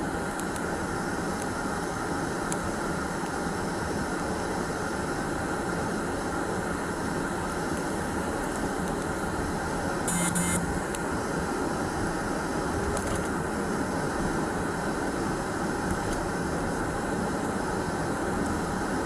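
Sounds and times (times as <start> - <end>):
short beep: 10.1 - 10.8.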